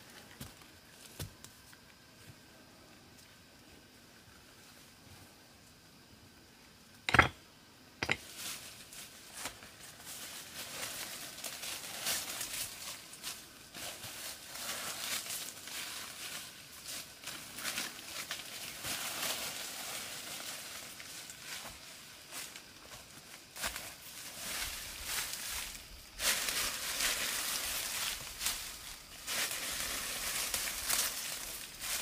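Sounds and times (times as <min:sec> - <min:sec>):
dry rustling and crinkling: 0:08.1 - 0:22.4, 0:23.5 - 0:32.0.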